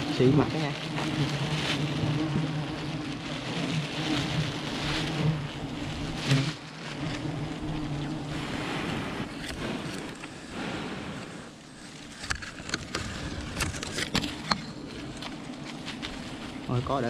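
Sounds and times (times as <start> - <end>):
bees buzzing: 0.0 - 17.0
hiss: 8.2 - 11.9.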